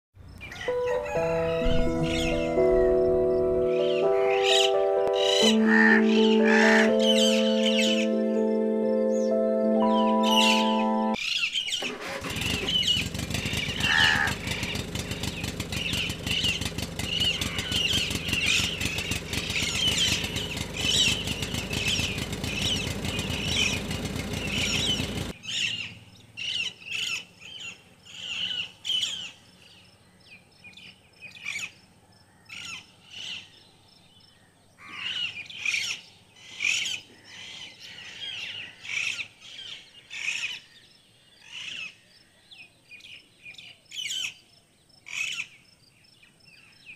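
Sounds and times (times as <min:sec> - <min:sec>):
birds chirping: 0:00.3 - 0:46.9
engine chugging: 0:00.7 - 0:11.2, 0:11.8 - 0:26.7.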